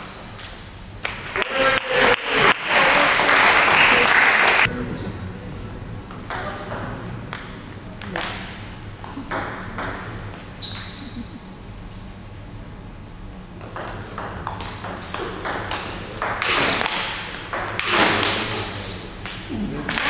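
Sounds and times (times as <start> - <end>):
shoes squeaking on floor: 0.0 - 1.0, 10.4 - 11.4, 15.0 - 17.3, 18.0 - 19.2
table tennis ball hits: 0.0 - 1.8, 6.1 - 11.0, 13.6 - 20.0.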